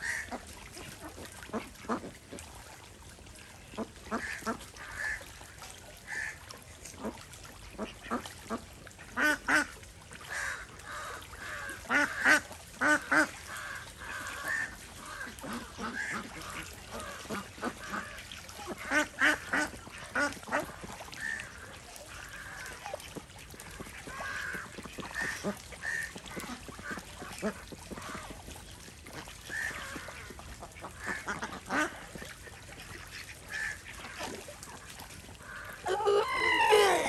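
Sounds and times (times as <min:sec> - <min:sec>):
ducks splashing in water: 0:00.0 - 0:37.0
ducks quacking: 0:10.3 - 0:37.0.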